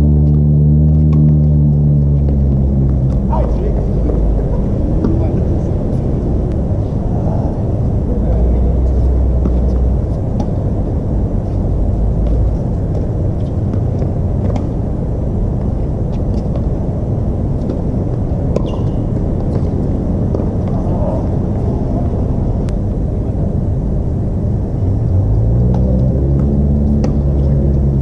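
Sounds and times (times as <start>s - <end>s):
low rumble: 0.0s - 28.0s
tennis ball being struck: 18.5s - 19.7s.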